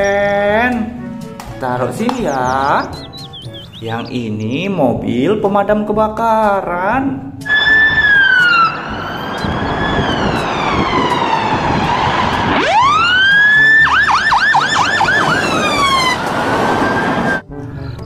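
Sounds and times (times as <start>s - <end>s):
vehicle engine and road noise: 0.9s - 4.7s, 7.4s - 18.0s
fire engine siren wailing and yelping: 7.5s - 17.5s.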